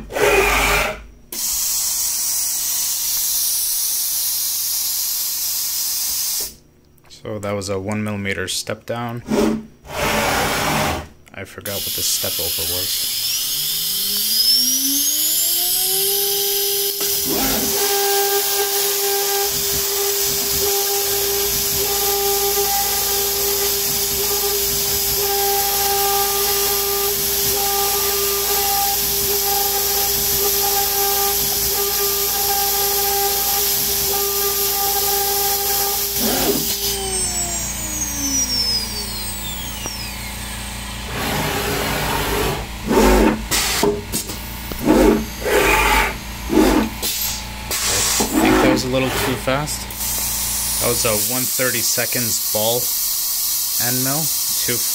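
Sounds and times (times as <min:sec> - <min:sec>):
router spindle whine: 0:00.0 - 0:01.6, 0:11.7 - 0:54.9
coolant nozzle hiss: 0:11.7 - 0:13.5, 0:16.9 - 0:40.1, 0:46.9 - 0:54.9.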